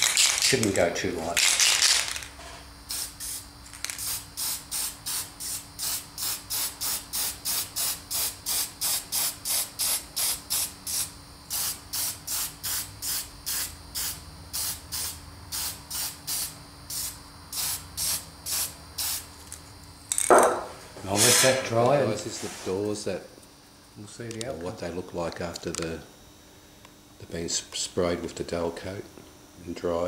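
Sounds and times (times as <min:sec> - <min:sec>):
aerosol spray can hissing: 0:02.9 - 0:19.3, 0:21.2 - 0:21.7.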